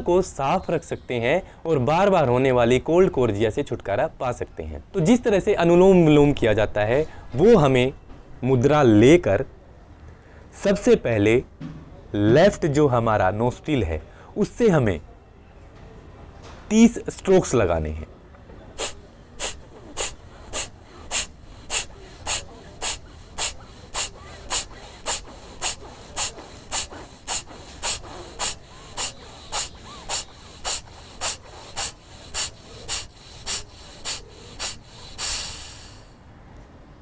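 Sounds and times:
forceful nasal exhalations: 18.7s - 36.2s.

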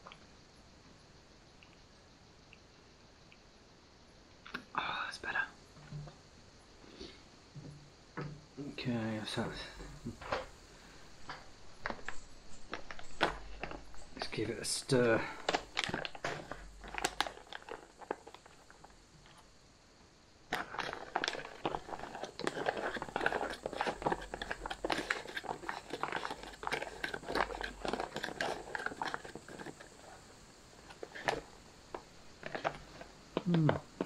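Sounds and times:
pouch crinkling: 14.9s - 19.4s, 20.5s - 34.0s
spoon stirring in foil pouch: 15.3s - 19.4s, 20.5s - 34.0s.

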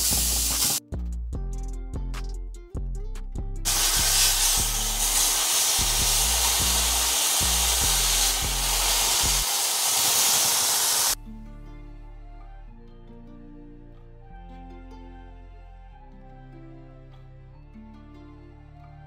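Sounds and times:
chicken sizzling in frying pan: 0.0s - 0.8s, 3.7s - 11.2s
background music: 0.0s - 19.0s.

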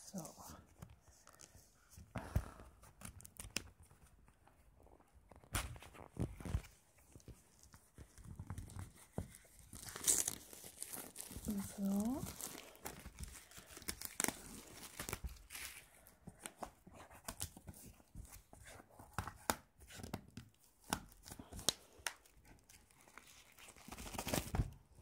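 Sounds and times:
plastic shrink-wrap crinkling: 8.0s - 16.2s, 21.2s - 24.5s.

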